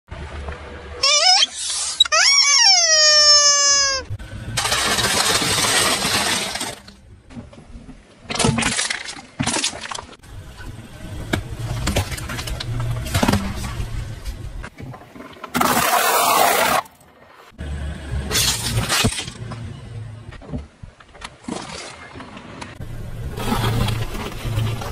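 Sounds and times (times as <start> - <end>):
rubber squeaky toy squealing: 1.0 - 4.1
car rumbling slowly: 10.2 - 14.8, 22.7 - 24.9
objects crunching under tyre: 11.3 - 17.1, 20.4 - 24.9.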